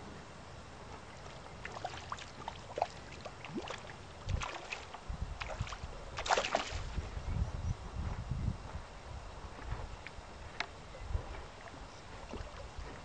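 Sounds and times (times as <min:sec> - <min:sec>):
river water gurgling and lapping: 0:00.7 - 0:07.0, 0:11.4 - 0:13.0
water splashes: 0:01.2 - 0:07.0, 0:11.6 - 0:13.0.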